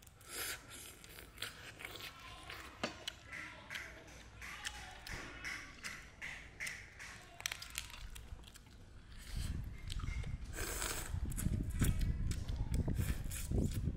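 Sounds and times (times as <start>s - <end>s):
chewing: 0.0s - 13.9s
shrimp shells cracking: 4.6s - 9.3s.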